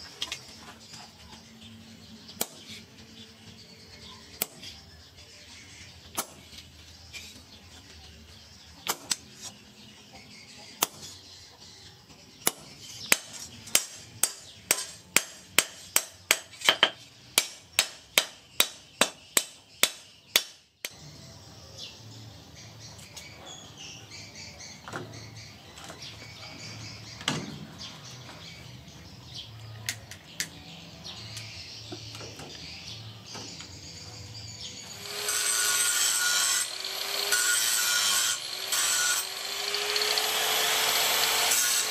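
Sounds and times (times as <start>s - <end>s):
hammer striking punch on anvil: 12.5s - 20.5s
angle grinder grinding steel: 34.8s - 41.9s.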